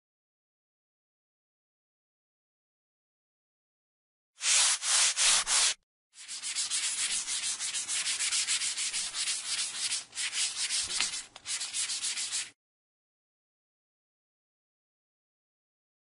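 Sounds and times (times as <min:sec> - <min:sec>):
eraser rubbing on paper: 0:04.4 - 0:12.6.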